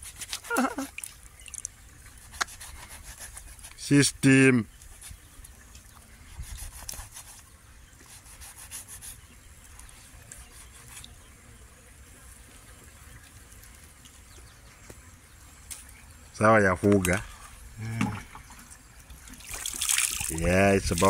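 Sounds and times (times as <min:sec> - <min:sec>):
knife scraping fish: 0:00.0 - 0:00.7, 0:02.2 - 0:03.8, 0:06.3 - 0:07.4, 0:08.0 - 0:09.2, 0:10.3 - 0:11.1.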